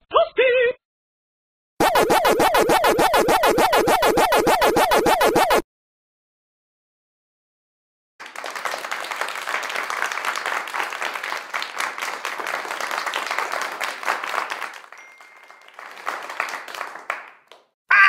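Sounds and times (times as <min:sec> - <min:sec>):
crowd applause and cheering: 0:08.2 - 0:17.6.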